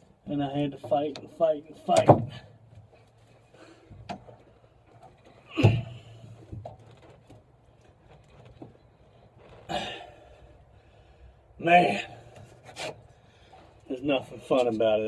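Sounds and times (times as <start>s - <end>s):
thump: 5.5s - 6.7s.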